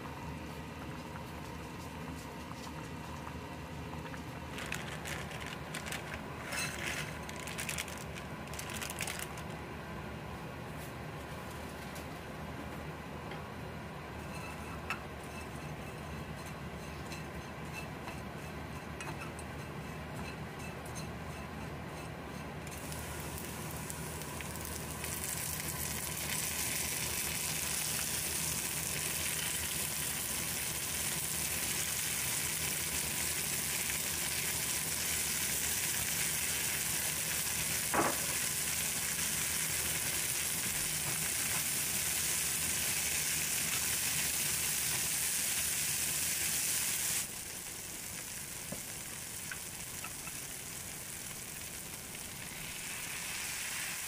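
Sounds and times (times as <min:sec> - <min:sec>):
food sizzling in oil: 0:22.8 - 0:54.0.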